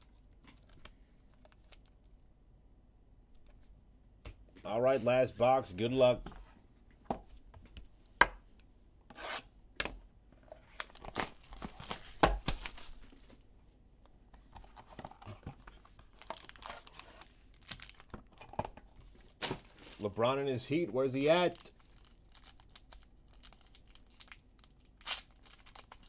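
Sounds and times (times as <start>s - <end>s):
plastic wrap and cardboard tearing: 10.8s - 13.4s, 21.5s - 26.0s.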